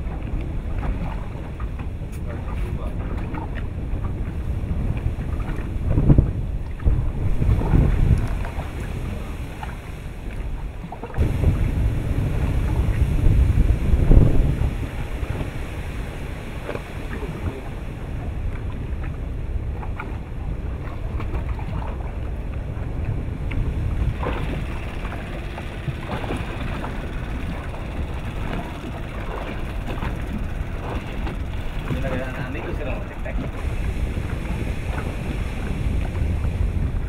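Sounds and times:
low rumble: 0:00.0 - 0:37.0
wind buffeting microphone: 0:00.0 - 0:37.0.

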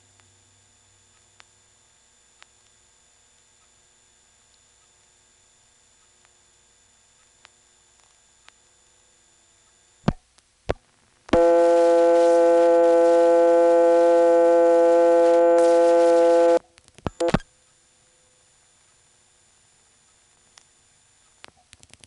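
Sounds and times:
buzzy call-progress tone: 0:11.3 - 0:16.6.

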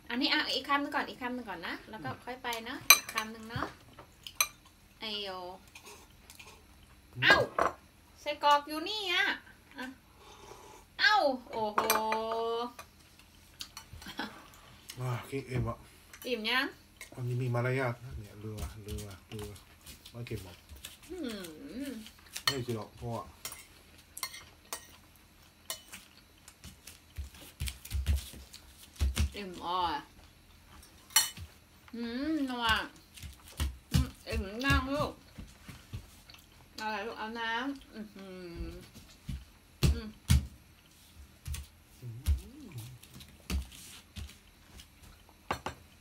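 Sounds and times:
faint wavering whine: 0:34.3 - 0:46.0
tableware clicking and knocking: 0:45.5 - 0:45.8.

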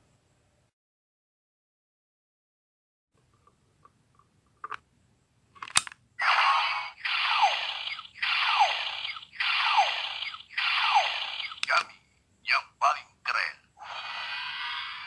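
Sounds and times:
plastic toy click: 0:05.6 - 0:06.0.

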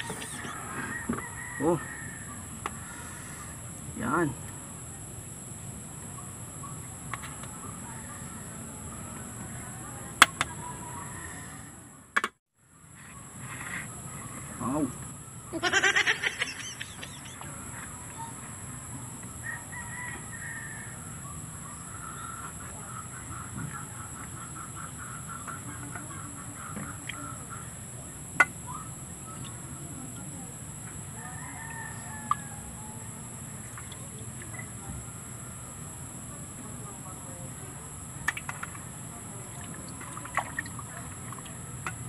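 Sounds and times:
birds calling: 0:00.0 - 0:02.1, 0:15.4 - 0:18.5, 0:21.3 - 0:29.7.

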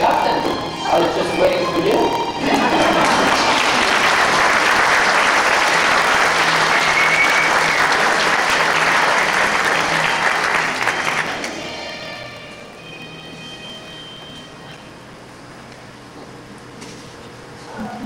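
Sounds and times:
audience applauding: 0:01.0 - 0:12.3.

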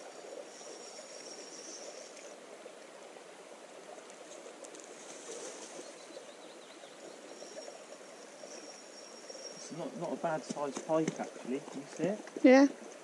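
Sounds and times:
river water running: 0:00.0 - 0:13.0.

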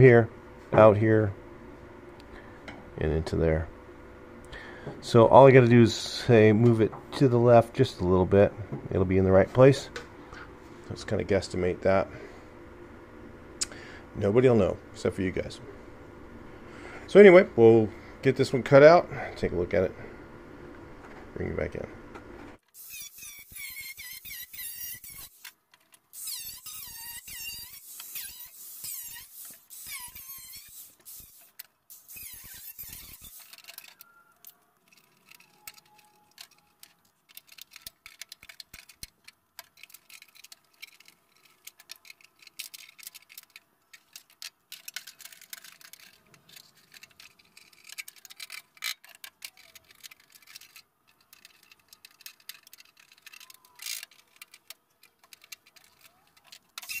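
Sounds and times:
angle grinder cutting steel: 0:22.8 - 0:25.5, 0:26.2 - 0:33.6.

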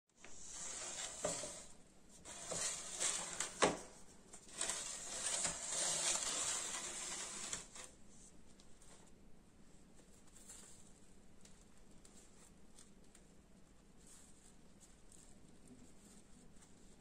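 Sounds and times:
tray scraping on countertop: 0:00.2 - 0:08.0.

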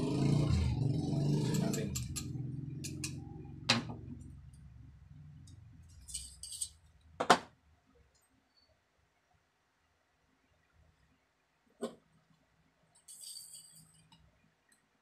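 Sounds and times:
metal tools clicking and clinking: 0:05.9 - 0:06.8, 0:13.0 - 0:14.2.

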